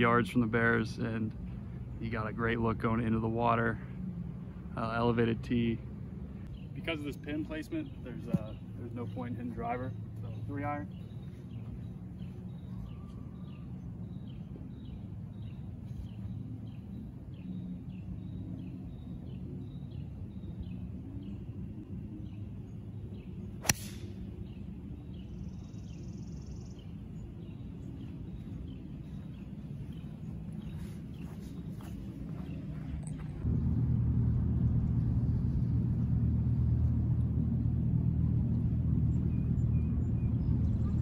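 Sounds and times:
outdoor background noise: 0.0s - 41.0s
golf club striking ball: 23.6s - 24.2s.

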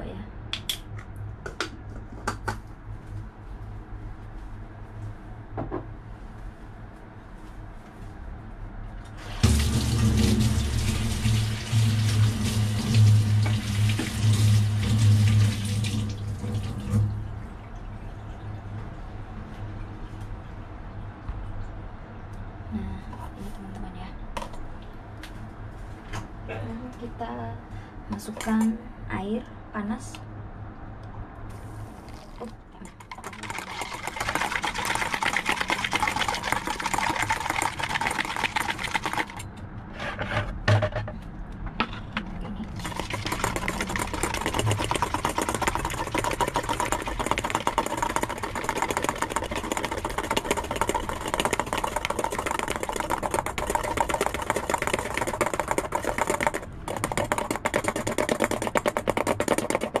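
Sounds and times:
metal whisk rattling in bowl: 32.9s - 39.4s, 42.7s - 60.0s.

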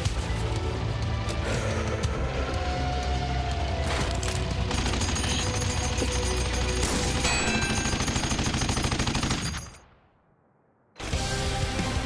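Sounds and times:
rapid automatic gunfire: 4.7s - 9.8s.

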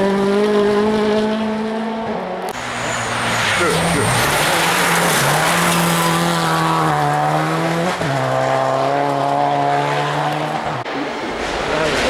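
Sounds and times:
rally car engine revving: 0.0s - 12.0s.

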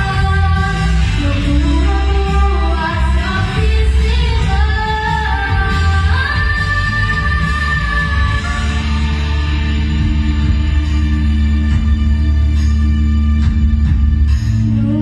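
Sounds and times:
girl singing into a microphone: 0.0s - 9.0s
pop backing track: 0.0s - 15.0s.

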